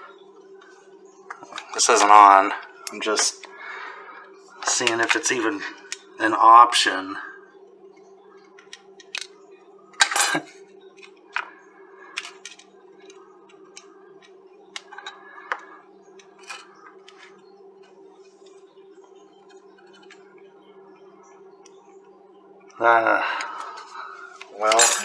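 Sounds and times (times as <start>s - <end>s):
steady low hum: 0.0s - 25.0s
metal tools clicking on circuit board: 24.7s - 25.0s.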